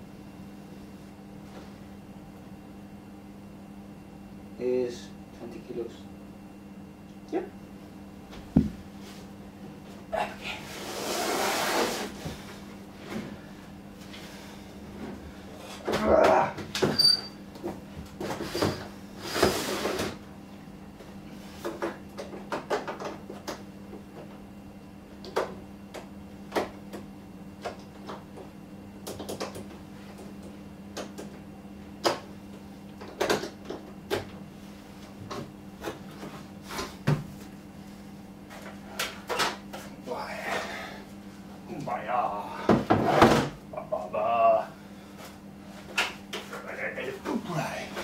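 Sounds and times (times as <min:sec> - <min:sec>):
low steady hum: 0:20.2 - 0:48.0.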